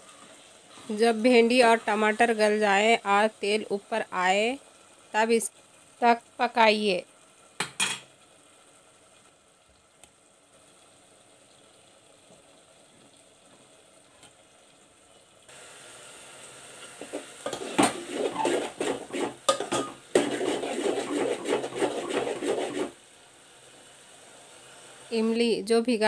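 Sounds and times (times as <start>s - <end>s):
spoon scraping metal pot: 17.0s - 23.0s.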